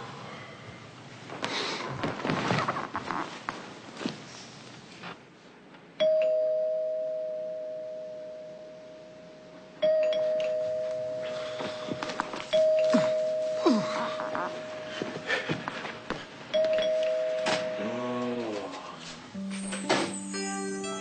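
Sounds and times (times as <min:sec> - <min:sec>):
two-note doorbell chime: 0:06.0 - 0:09.0, 0:09.8 - 0:15.1, 0:16.6 - 0:18.0, 0:19.4 - 0:21.0.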